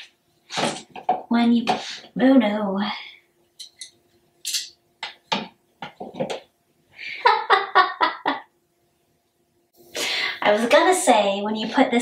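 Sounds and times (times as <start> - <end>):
woman laughing: 7.0 - 8.5.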